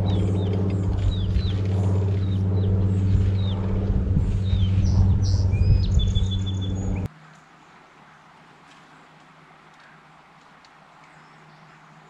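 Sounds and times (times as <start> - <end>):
steady low hum: 0.0 - 7.1
small birds chirping: 0.0 - 12.0.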